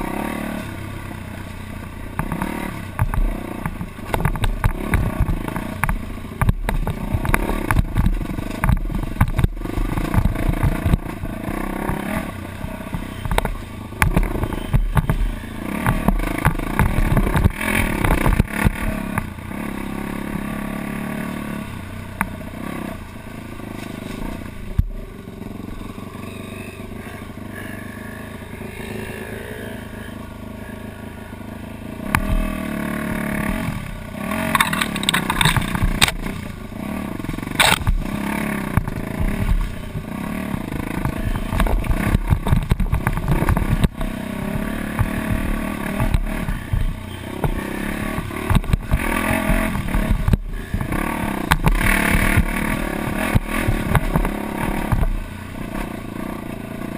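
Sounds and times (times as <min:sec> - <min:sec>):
dirt bike engine revving: 0:00.0 - 0:56.9
bike clattering over rough ground: 0:01.9 - 0:19.4, 0:32.0 - 0:56.6.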